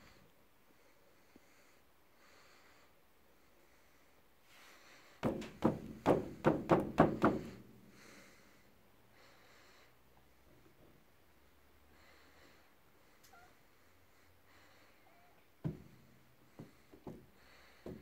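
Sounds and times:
hand patting kick drum thumps: 5.2 - 7.6.

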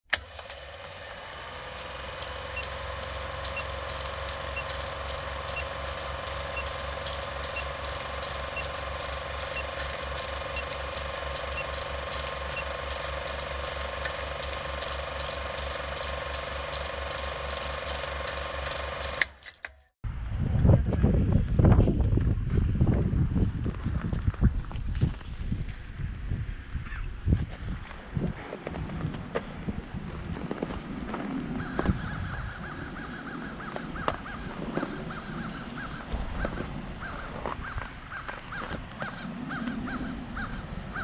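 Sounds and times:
film projector clatter: 0.1 - 19.9
pulsing hum: 0.1 - 20.4
short high beeps: 2.5 - 13.0.

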